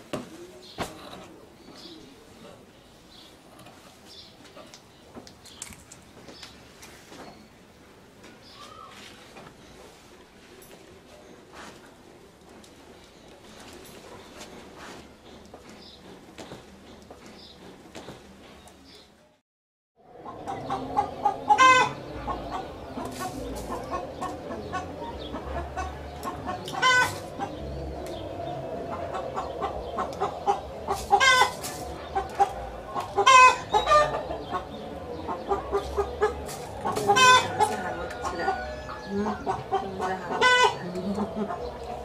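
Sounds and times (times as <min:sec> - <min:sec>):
chickens clucking: 0:20.1 - 0:42.0.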